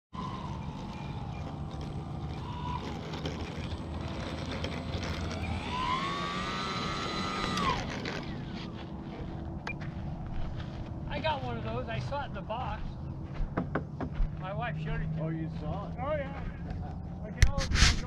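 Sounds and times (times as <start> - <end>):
model airplane motor whining: 0.2 - 9.3
steady low rumble: 8.3 - 13.5.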